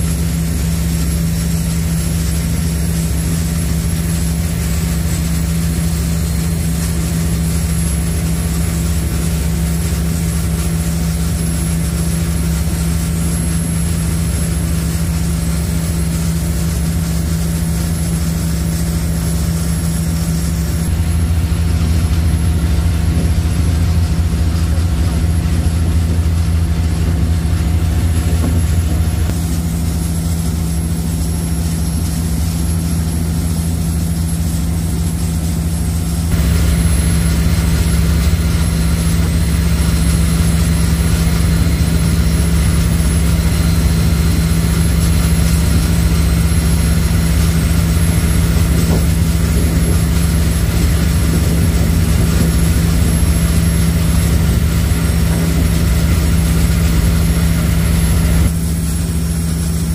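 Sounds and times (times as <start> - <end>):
ferry engines droning: 18.4 - 59.9.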